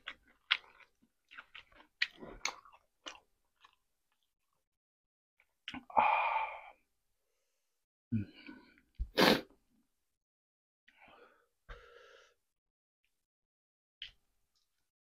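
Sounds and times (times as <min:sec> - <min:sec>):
faint breaths: 0:10.9 - 0:12.4
voiced catch of breath: 0:11.0 - 0:12.4.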